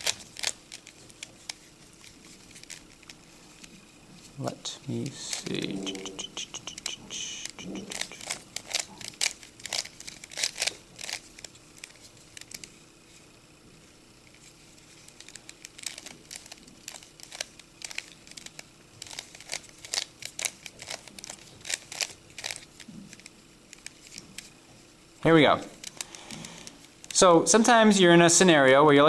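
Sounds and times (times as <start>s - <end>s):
puzzle cube clicking: 5.0s - 12.7s, 15.1s - 24.5s.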